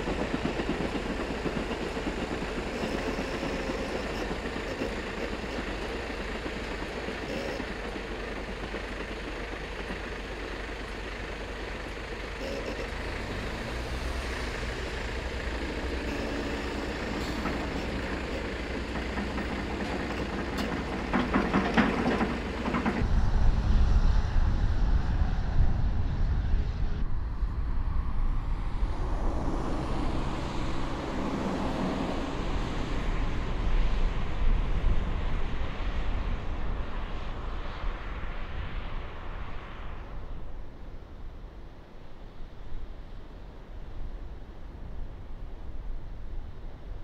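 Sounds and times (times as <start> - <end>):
heavy trucks engine hum: 0.0 - 27.0, 27.9 - 47.0
wind buffeting microphone: 22.4 - 30.8.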